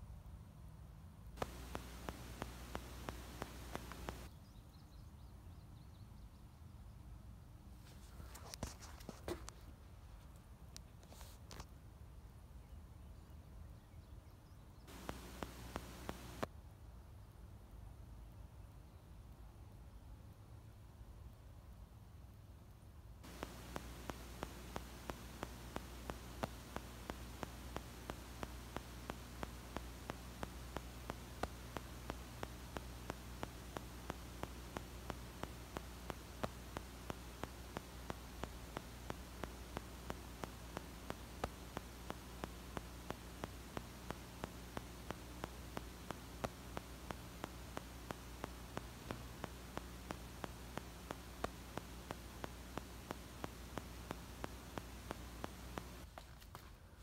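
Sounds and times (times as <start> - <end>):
electrical hum with hiss: 0.0 - 5.6, 14.0 - 17.9, 19.8 - 56.1
faint ticks: 1.4 - 4.3, 14.9 - 16.5, 23.2 - 56.7.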